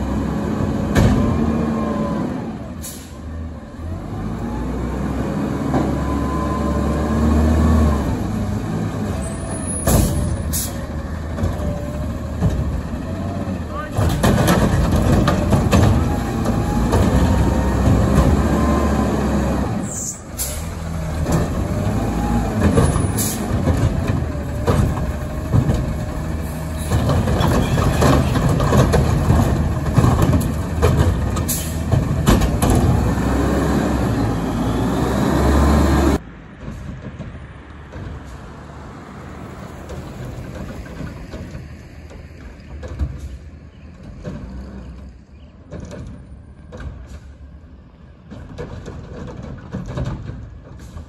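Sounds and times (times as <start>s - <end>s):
garbage truck engine running: 0.0s - 38.3s.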